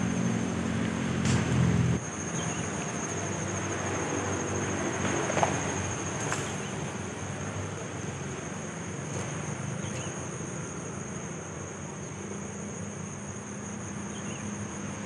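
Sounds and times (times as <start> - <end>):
insects trilling: 0.0 - 15.0.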